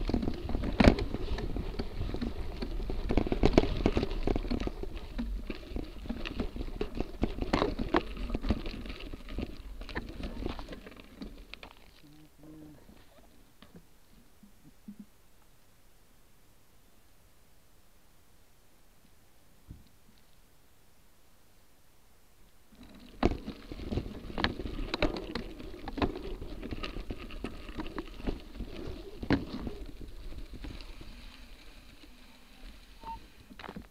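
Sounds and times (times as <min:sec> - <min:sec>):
bike tyres on gravel: 0:00.0 - 0:13.7, 0:22.7 - 0:33.9.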